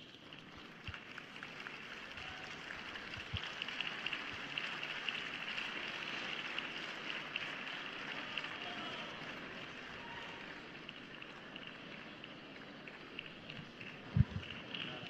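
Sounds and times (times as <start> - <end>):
spectators applauding: 0.0 - 15.0.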